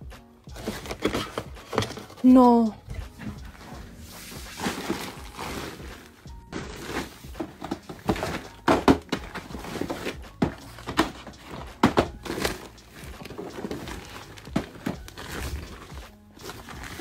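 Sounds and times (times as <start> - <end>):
fabric rustling: 0.5 - 8.6
phone knocking in fabric bag: 6.5 - 13.2.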